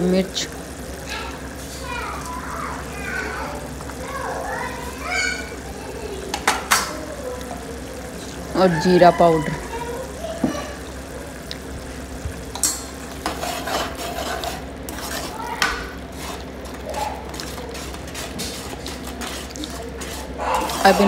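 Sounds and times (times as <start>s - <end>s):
paste sizzling in oil: 12.9s - 21.0s
metal ladle scraping a pan: 13.2s - 15.4s, 17.7s - 21.0s.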